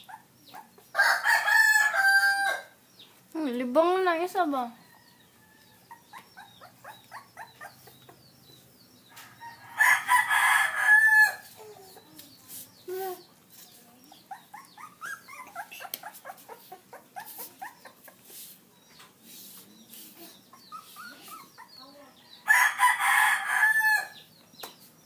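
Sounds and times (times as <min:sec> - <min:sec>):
puppies squeaking and yipping: 0:00.0 - 0:00.9, 0:05.8 - 0:08.6, 0:11.4 - 0:22.1.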